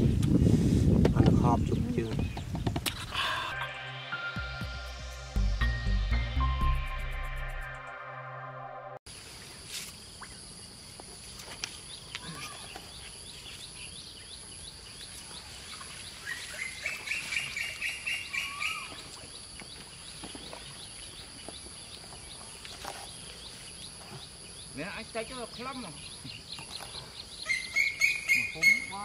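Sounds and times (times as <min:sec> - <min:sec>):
birds chirping: 0:01.0 - 0:04.1, 0:11.6 - 0:29.0.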